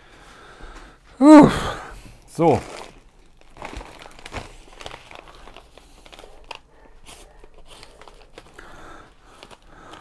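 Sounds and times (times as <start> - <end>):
paper bag crinkling: 2.3 - 10.0.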